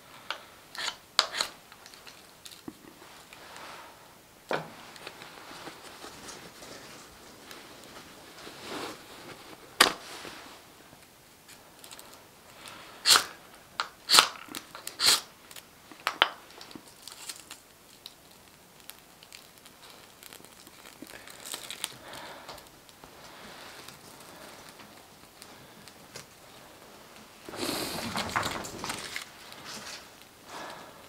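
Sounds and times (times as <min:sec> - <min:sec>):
knife scraping bark: 0:00.8 - 0:01.5, 0:14.9 - 0:15.3
faint crackling: 0:15.4 - 0:31.0.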